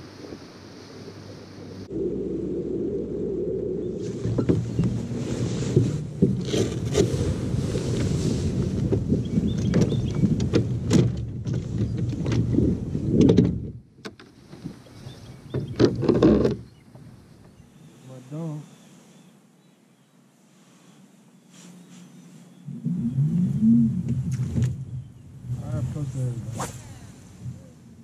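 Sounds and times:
low engine rumble: 0.0 - 13.1, 21.4 - 28.0.

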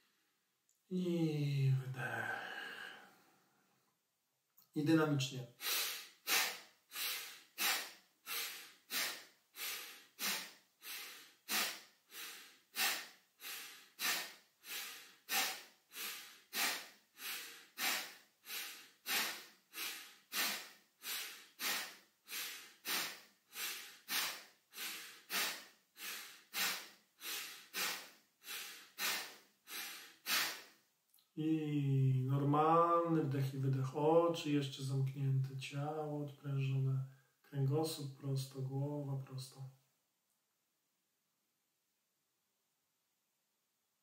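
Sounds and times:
man breathing rapidly through nose: 5.5 - 30.8.

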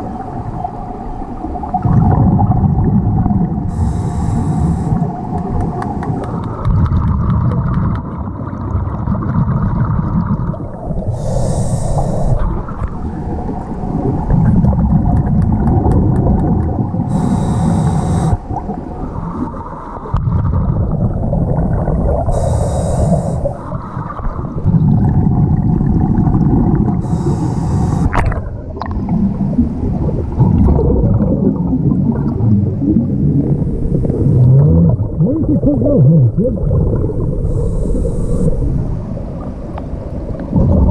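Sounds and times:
rumbling exhaust bubbles: 1.7 - 19.5, 20.1 - 39.3, 40.4 - 40.9
regulator hissing inhale: 3.7 - 5.2, 11.1 - 12.5, 17.1 - 18.5, 22.3 - 23.7, 27.0 - 28.2, 37.4 - 38.7.

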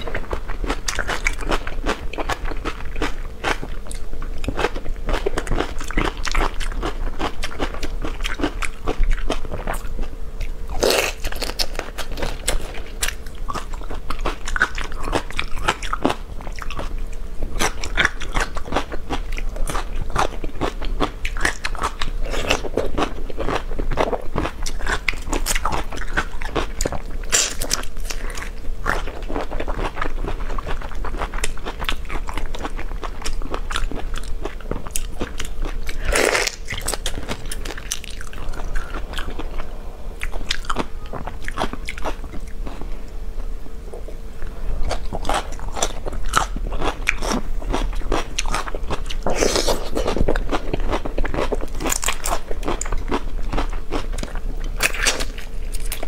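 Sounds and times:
chewing and crunching food: 0.0 - 43.1, 44.0 - 56.0.

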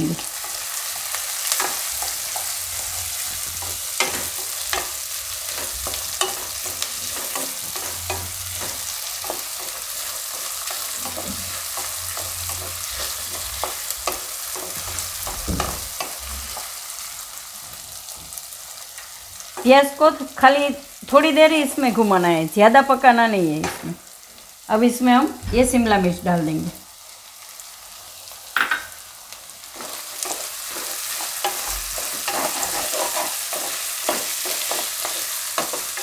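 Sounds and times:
onion sizzling in hot oil: 0.0 - 36.0
spatula scraping and tapping pan: 1.4 - 16.8, 29.8 - 36.0.

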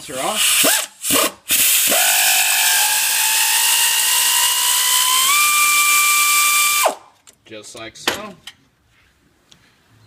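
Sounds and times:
power tool motor whine: 1.5 - 7.0.

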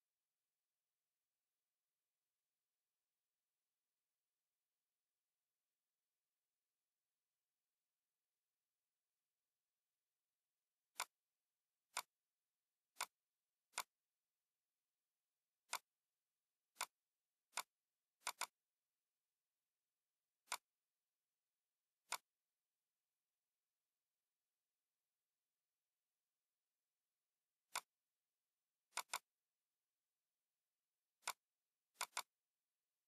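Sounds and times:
computer mouse clicking: 10.9 - 11.2, 11.9 - 12.2, 12.9 - 14.0, 15.6 - 16.0, 16.7 - 18.6, 20.4 - 20.8, 22.0 - 22.4, 27.7 - 28.0, 28.9 - 29.4, 31.2 - 32.4.

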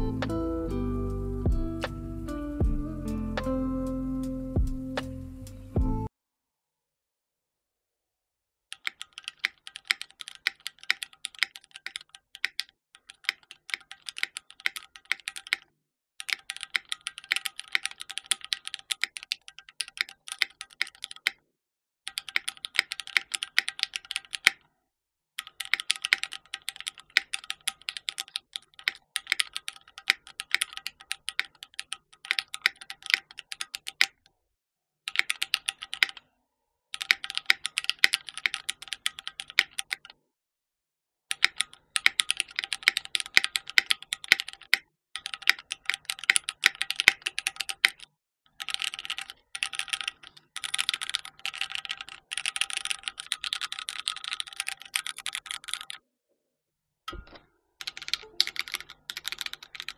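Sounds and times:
fast mechanical keyboard typing: 8.7 - 21.4, 22.1 - 24.6, 25.4 - 34.2, 35.1 - 36.2, 37.0 - 40.1, 41.3 - 56.0, 57.8 - 59.9.

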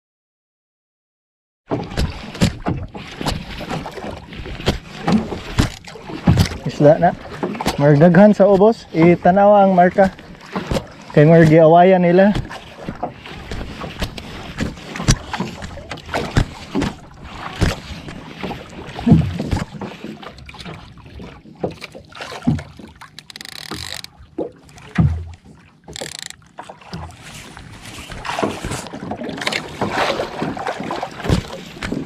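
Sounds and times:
water sloshing against boat hull: 1.7 - 32.0
fishing reel knocks and handling: 23.1 - 24.1, 25.9 - 26.4.

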